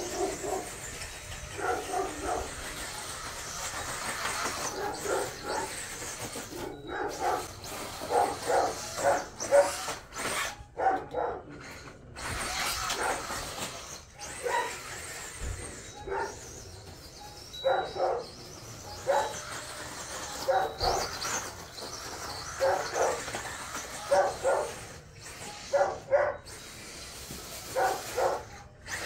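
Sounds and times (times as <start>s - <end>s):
electric rc truck hiss: 0.0s - 10.8s, 11.6s - 29.0s
dog barking: 1.6s - 2.5s, 10.8s - 11.5s, 24.1s - 24.8s, 25.7s - 26.4s, 27.8s - 28.5s.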